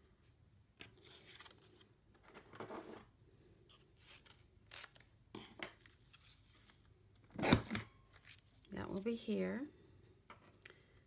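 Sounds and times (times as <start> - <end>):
paper rustling: 0.8 - 3.1, 3.7 - 6.9.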